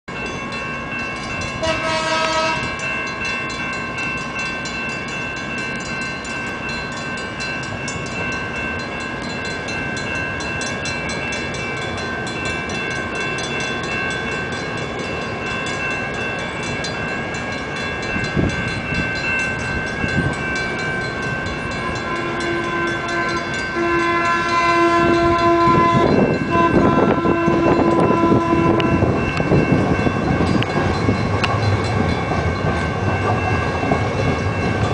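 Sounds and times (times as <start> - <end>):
light-rail cars whining: 0.1 - 34.9
wheels clicking over rail joints: 28.8 - 34.9.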